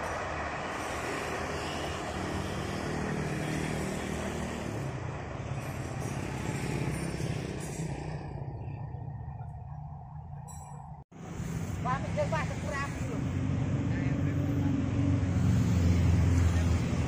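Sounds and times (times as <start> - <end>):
motor vehicle engine rumble: 4.2 - 17.0.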